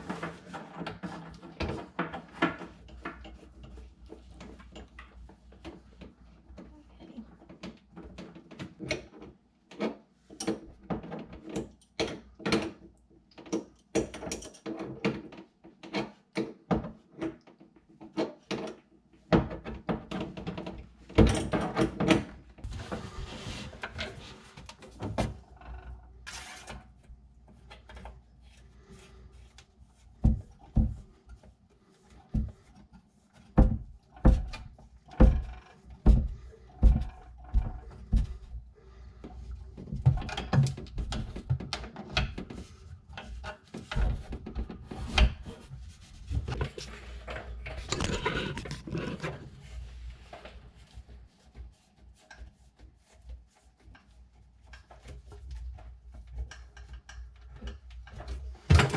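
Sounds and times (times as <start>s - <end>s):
plumbing fittings clicking and knocking: 0.1s - 6.7s, 7.5s - 22.3s, 33.4s - 38.6s, 39.3s - 45.6s, 54.0s - 58.9s.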